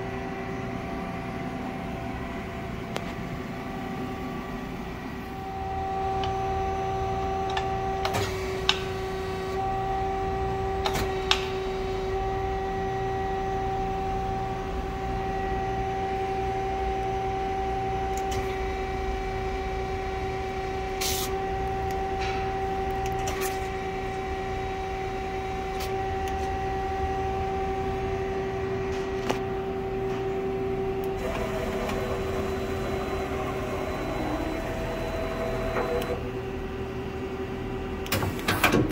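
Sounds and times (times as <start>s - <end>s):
lathe humming: 29.5s - 36.5s.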